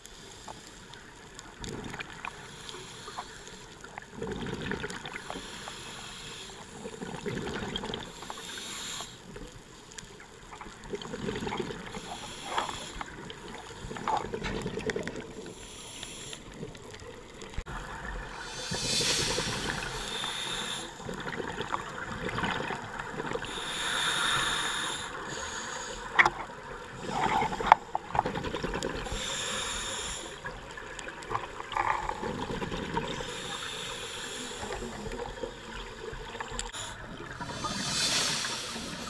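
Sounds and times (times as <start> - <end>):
steady water hiss: 0.0 - 39.0
exhaled bubbles underwater: 3.8 - 5.4, 6.8 - 8.2, 10.5 - 15.6, 16.6 - 23.7, 26.0 - 33.8, 34.6 - 39.0.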